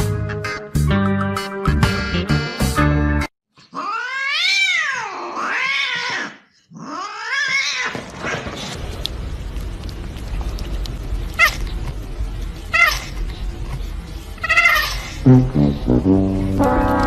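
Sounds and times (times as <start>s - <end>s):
cat meowing: 3.7s - 8.0s.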